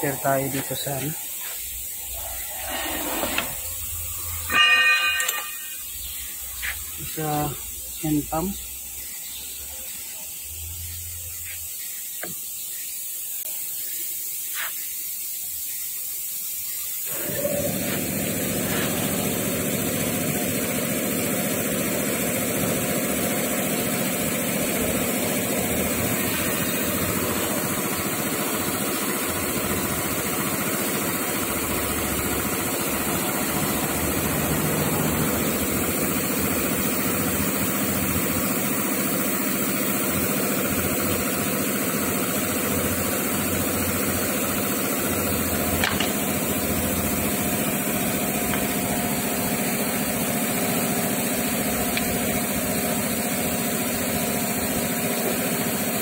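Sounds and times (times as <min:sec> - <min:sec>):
faint hiss: 0:00.0 - 0:04.5, 0:05.7 - 0:18.0
steady motor noise: 0:00.0 - 0:12.5, 0:17.0 - 0:56.0.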